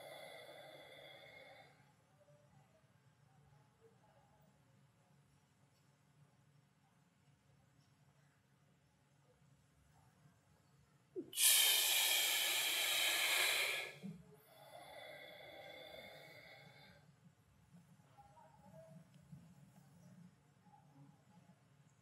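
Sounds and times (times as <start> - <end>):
hissing breath with faint whistle: 0.0 - 1.8, 11.3 - 14.0, 14.6 - 16.9
man breathing heavily: 11.3 - 14.0.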